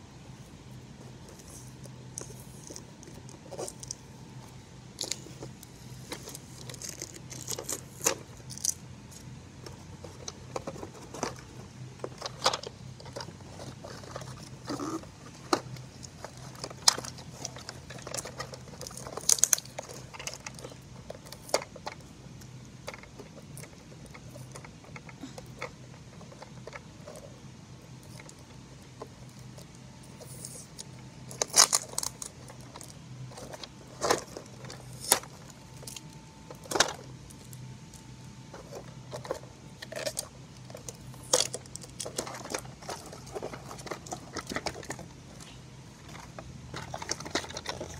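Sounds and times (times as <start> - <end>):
faint low hum: 0.0 - 47.9
plastic toy clicks and rattles: 5.0 - 22.1, 31.3 - 37.1, 46.1 - 47.9.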